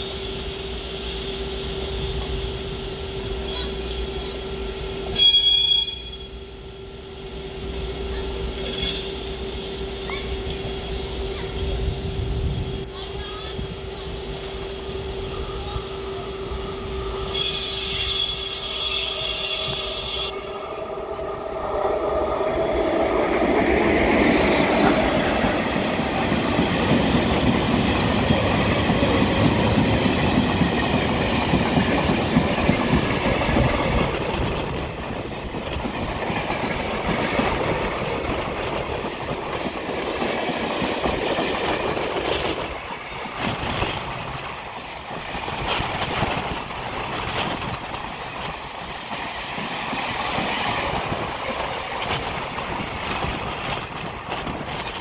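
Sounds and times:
train wheel squeal: 0:00.0 - 0:04.4, 0:05.0 - 0:06.5, 0:08.2 - 0:11.2, 0:14.8 - 0:21.1, 0:22.3 - 0:24.0
freight train wheels rumbling: 0:00.0 - 0:55.0
wheels clickety-clack over rail joints: 0:23.5 - 0:55.0.

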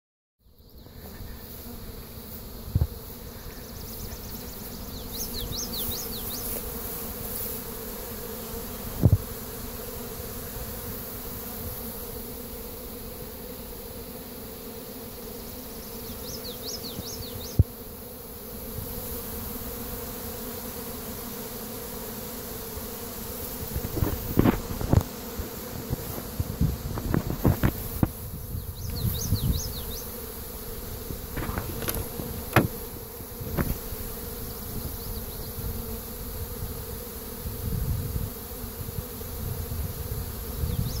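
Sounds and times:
bees buzzing: 0:00.4 - 0:41.0
sharp knocks: 0:31.4 - 0:32.8.

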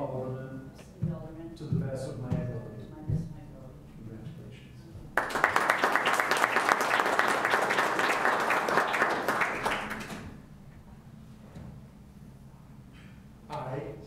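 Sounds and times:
small audience applauding: 0:05.2 - 0:10.4.

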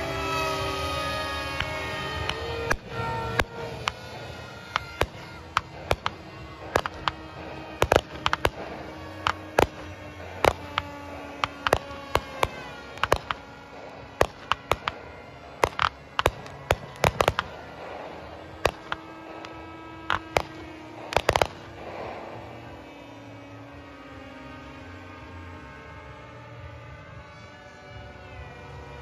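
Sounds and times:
steady hum: 0:00.0 - 0:28.1
fireworks crackling: 0:00.0 - 0:29.0
fireworks popping and cracking: 0:00.1 - 0:22.8.

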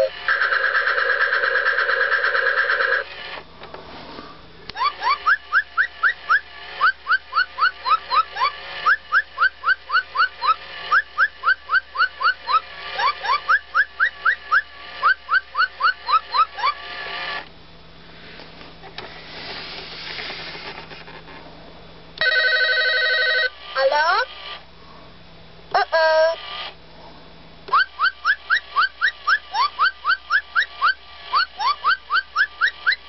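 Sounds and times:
toy rising whistled chirps: 0:04.8 - 0:16.8, 0:27.7 - 0:33.0.

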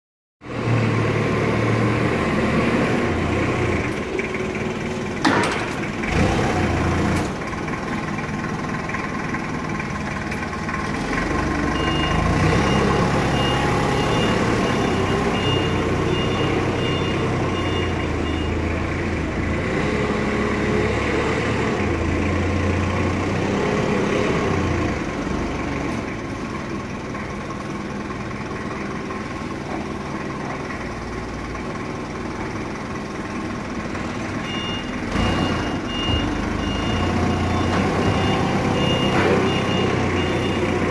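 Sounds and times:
forklift engine and hydraulics: 0:00.4 - 0:40.9
clunks: 0:04.8 - 0:06.2, 0:33.9 - 0:40.9
reversing alarm beeping: 0:11.7 - 0:18.7, 0:34.4 - 0:40.9.

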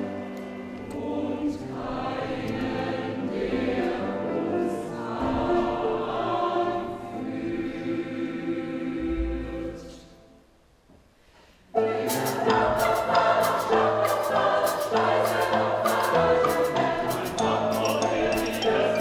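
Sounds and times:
choir singing: 0:00.0 - 0:10.4, 0:11.7 - 0:19.0
instrumental ensemble: 0:11.8 - 0:19.0
sharp percussion strikes: 0:12.0 - 0:18.8.

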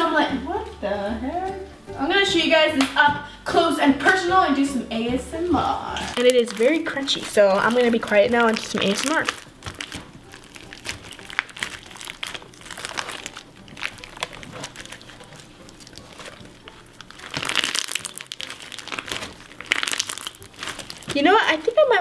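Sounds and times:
straw pieces crunching in slime: 0:05.9 - 0:21.8.

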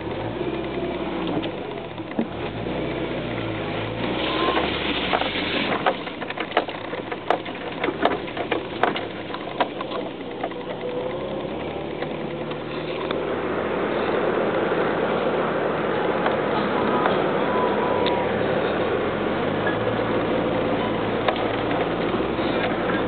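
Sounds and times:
pickup truck engine running: 0:00.0 - 0:23.0
sharp knocks and rattles: 0:04.9 - 0:13.2, 0:19.7 - 0:23.0.

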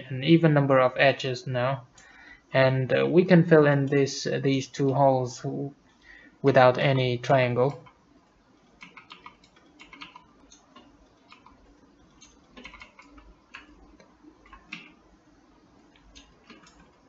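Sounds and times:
mouse and keyboard clicks: 0:08.7 - 0:15.0, 0:15.9 - 0:17.0.

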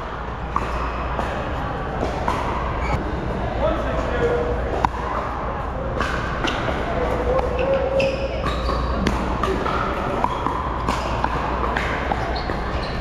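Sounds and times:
shoes squeaking on court: 0:02.1 - 0:03.0, 0:06.4 - 0:13.0.

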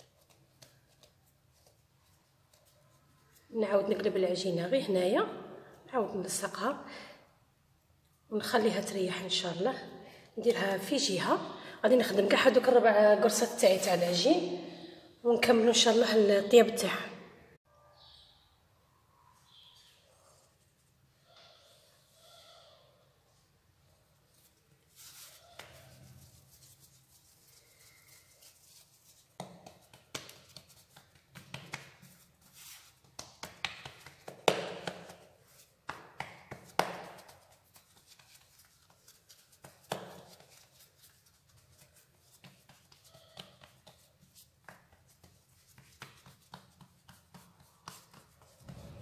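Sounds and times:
hands patting and slapping dough: 0:00.0 - 0:03.4, 0:24.9 - 0:27.6, 0:28.4 - 0:49.0.

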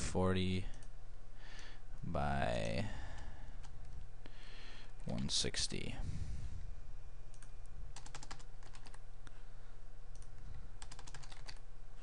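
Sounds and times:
steady low hum: 0:00.0 - 0:12.0
keyboard keys tapping: 0:07.3 - 0:09.0, 0:10.2 - 0:11.6.

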